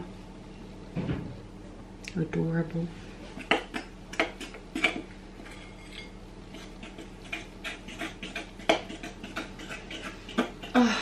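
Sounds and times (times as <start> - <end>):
fork scraping glass bowl: 3.4 - 10.7.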